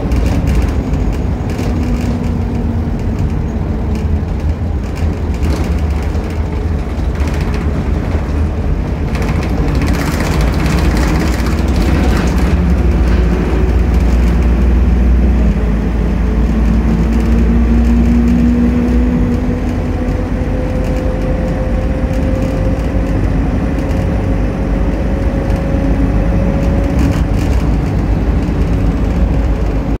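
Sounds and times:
bus engine and road rumble: 0.0 - 30.0
interior fittings rattling: 0.1 - 13.2.

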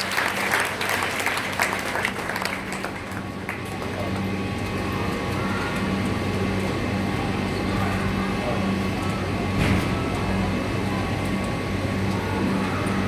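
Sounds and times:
hand-clapping applause: 0.0 - 4.4
steady low hum: 0.0 - 13.0.

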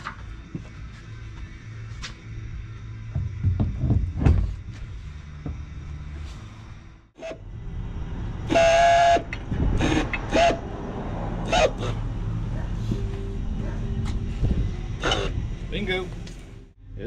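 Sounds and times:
outboard motor knocks and clanks: 3.0 - 5.7.

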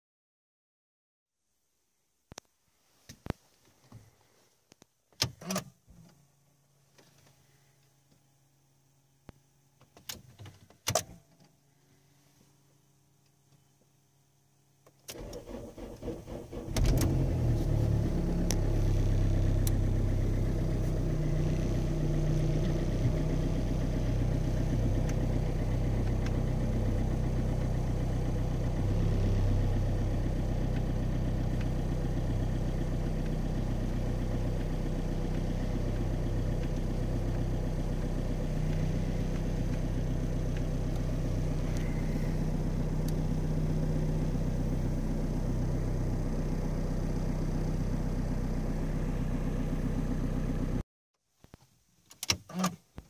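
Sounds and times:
diesel engine starting and idling: 15.1 - 50.8.

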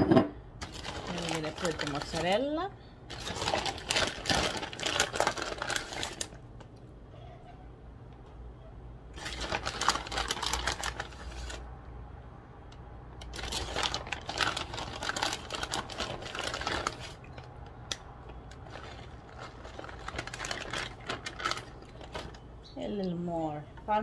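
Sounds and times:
plastic bag crinkling: 0.6 - 6.6, 9.2 - 11.7, 13.2 - 22.6.

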